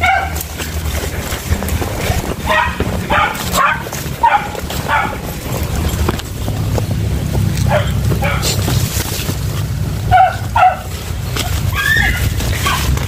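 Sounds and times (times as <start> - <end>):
hound yelping bays: 0.0 - 5.5, 7.6 - 8.6, 10.1 - 13.0
low rumble of movement: 0.0 - 13.0.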